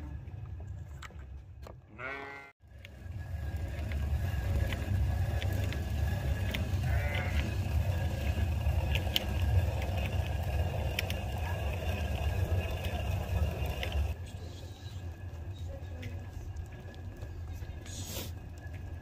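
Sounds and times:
sheep and goats bleating: 1.9s - 2.6s, 6.8s - 7.6s
low rumble: 2.7s - 19.0s.

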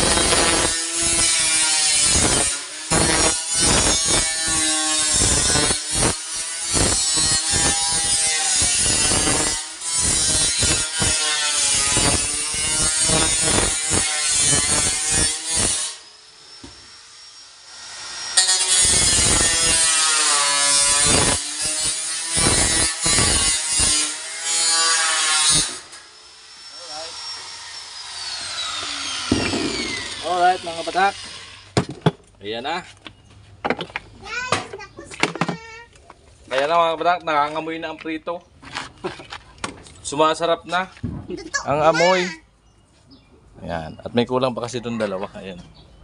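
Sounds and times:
saw cutting with rasping strokes: 0.0s - 31.7s.

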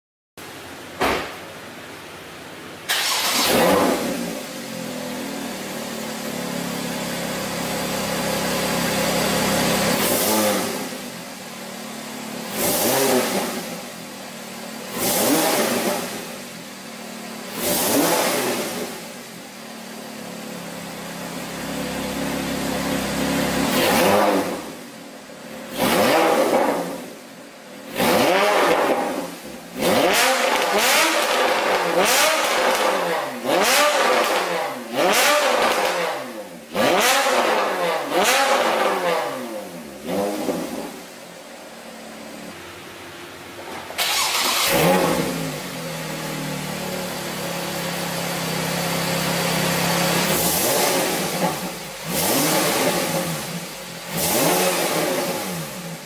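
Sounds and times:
sports car engine idling: 4.0s - 17.9s, 18.5s - 25.8s, 38.7s - 56.0s.

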